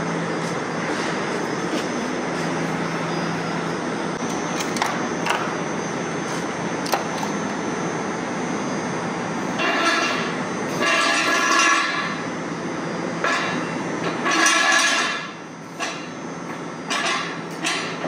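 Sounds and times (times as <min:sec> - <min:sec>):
mechanical running noise: 0:00.0 - 0:09.6.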